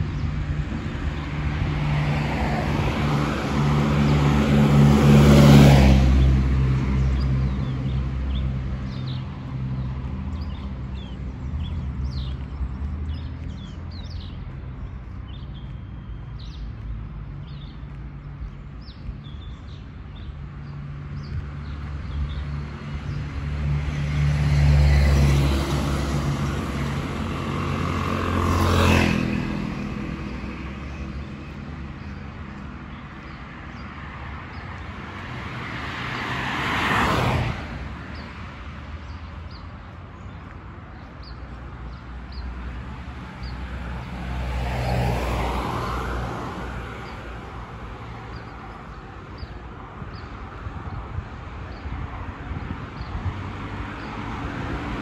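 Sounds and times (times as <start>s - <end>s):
cars passing on road: 0.0s - 55.0s.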